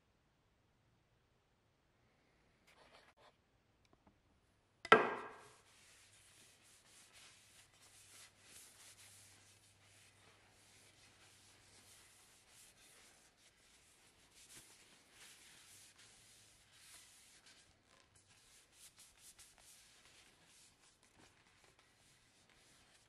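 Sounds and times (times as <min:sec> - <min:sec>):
paper towel scuffing wood: 0:04.9 - 0:23.0.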